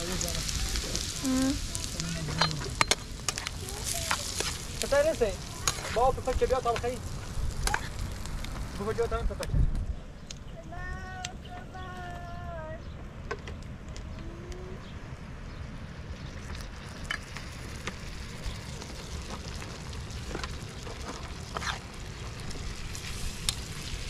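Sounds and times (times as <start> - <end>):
food sizzling in frying pan: 0.0 - 9.1, 16.6 - 24.0
wind rumble on microphone: 6.0 - 13.0.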